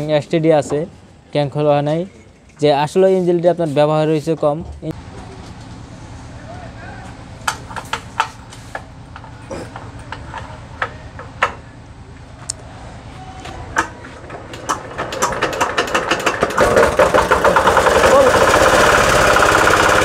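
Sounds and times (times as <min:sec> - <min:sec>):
diesel engine cranking and starting: 0:05.0 - 0:20.0.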